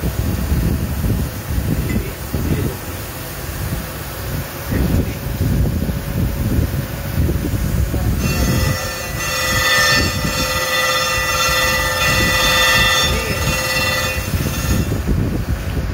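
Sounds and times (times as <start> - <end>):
machine low rumble: 0.0 - 15.9
grinding wheel high-pitched whine: 7.8 - 15.9.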